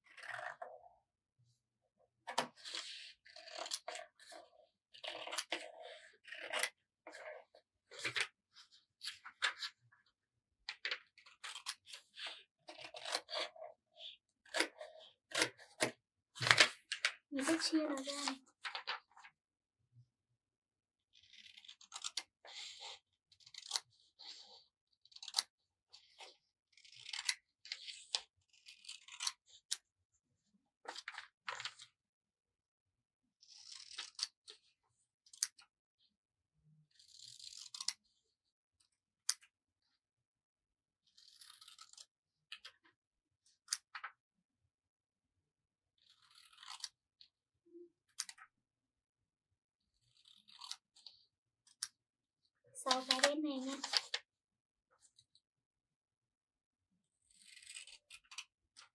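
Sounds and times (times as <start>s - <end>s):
scissors snipping paper: 11.3s - 13.6s, 14.4s - 18.4s, 21.3s - 22.8s, 23.5s - 24.4s, 25.1s - 25.5s, 52.9s - 54.2s.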